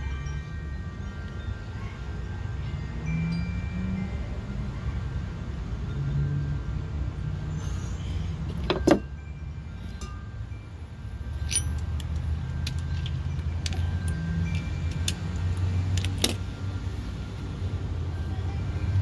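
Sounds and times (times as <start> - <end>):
metallic clinks of small parts: 11.3 - 16.5.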